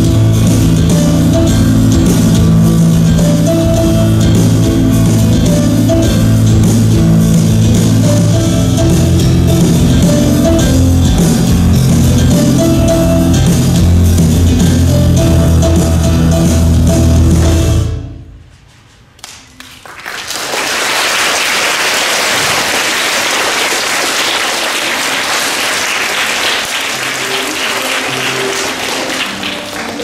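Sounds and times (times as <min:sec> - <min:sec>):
dance music with heavy beat: 0:00.0 - 0:17.9
audience applause: 0:19.4 - 0:30.0.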